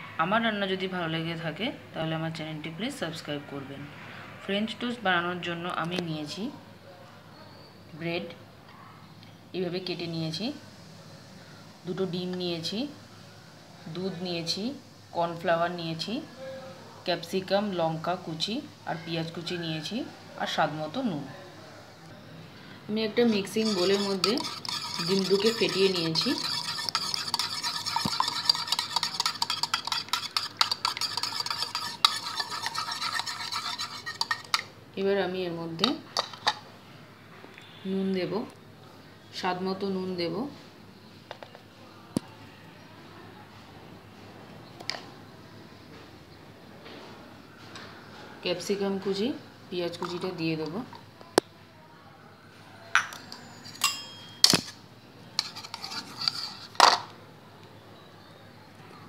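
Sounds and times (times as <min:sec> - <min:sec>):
whisk clicking against bowl: 0:23.3 - 0:34.7.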